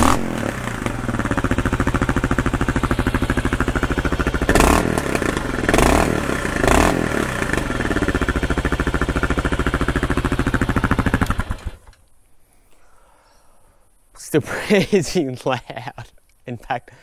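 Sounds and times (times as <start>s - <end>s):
motorcycle engine idling and revving: 0.0s - 11.9s.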